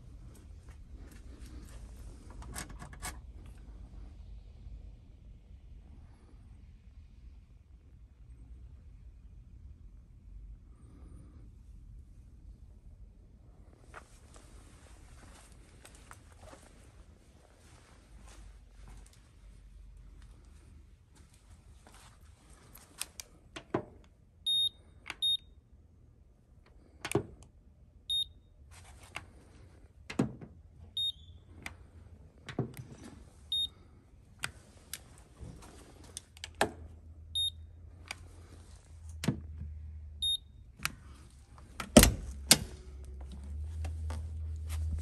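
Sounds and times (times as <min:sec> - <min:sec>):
short high beeps: 0:24.5 - 0:25.4.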